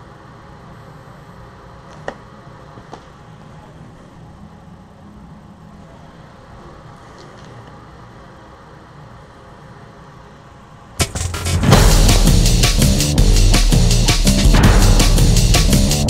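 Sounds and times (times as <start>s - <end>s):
loud aggressive music: 11.0s - 16.0s.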